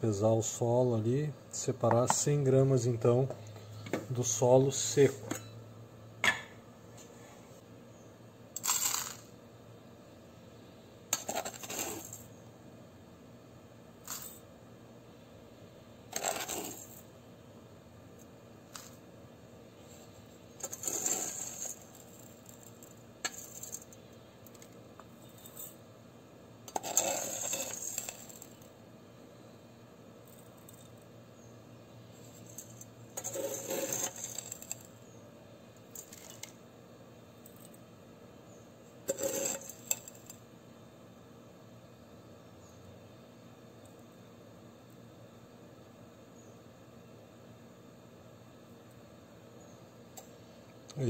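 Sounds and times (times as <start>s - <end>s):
soil grains rattling into cup: 8.6s - 9.3s, 11.2s - 12.3s, 16.1s - 17.0s, 20.6s - 25.8s, 26.7s - 28.7s, 32.2s - 34.9s, 39.1s - 40.4s.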